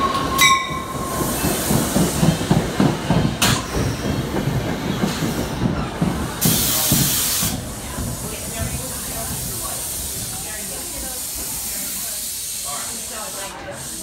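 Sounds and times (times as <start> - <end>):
train wheels clicking over rail joints: 0.0 - 12.4
air hiss burst: 6.4 - 14.0.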